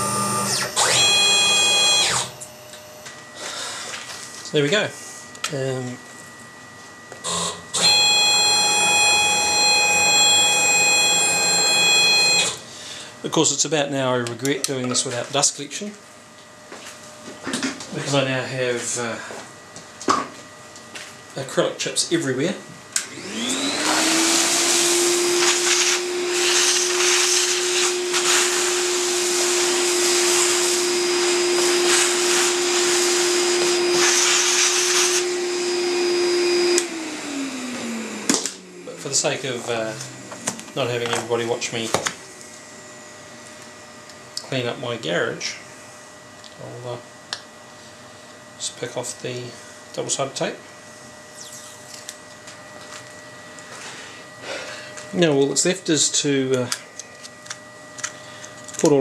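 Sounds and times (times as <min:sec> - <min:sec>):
stepper motors whining: 0:00.0 - 0:03.2, 0:07.2 - 0:12.6, 0:23.1 - 0:42.6, 0:51.2 - 0:52.4.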